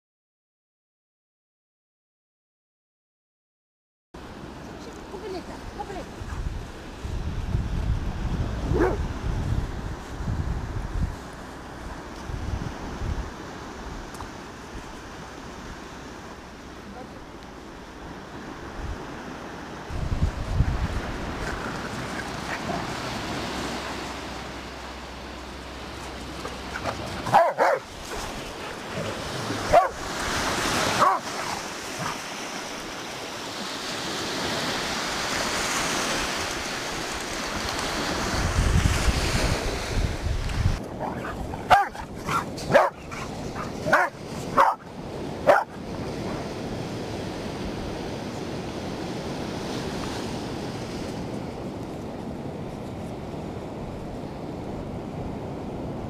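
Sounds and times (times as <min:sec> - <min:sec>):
surf washing on shore: 0:04.2 - 0:56.0
wind on microphone: 0:05.2 - 0:15.8, 0:16.4 - 0:56.0
dogs barking: 0:08.7 - 0:09.0, 0:26.4 - 0:30.1, 0:30.8 - 0:32.2, 0:40.9 - 0:45.8.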